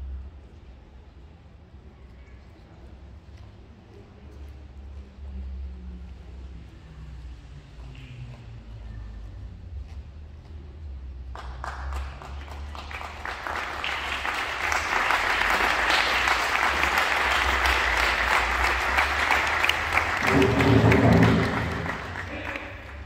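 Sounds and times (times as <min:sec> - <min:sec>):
audience applauding: 0:11.4 - 0:23.0.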